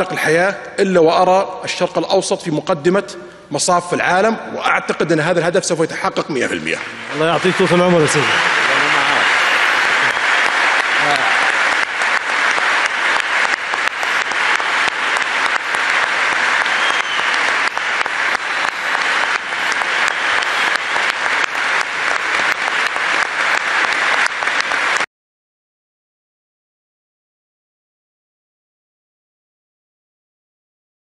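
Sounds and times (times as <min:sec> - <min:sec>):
large audience applauding: 0:06.3 - 0:25.1.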